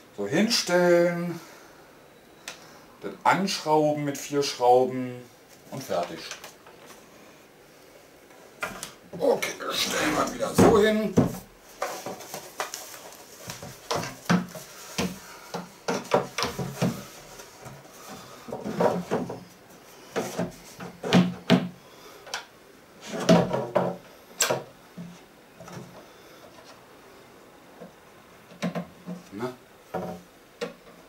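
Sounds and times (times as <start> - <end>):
wooden cabinet panels knocking: 10.2 - 11.5, 13.6 - 17.1, 20.2 - 21.8, 23.2 - 24.0.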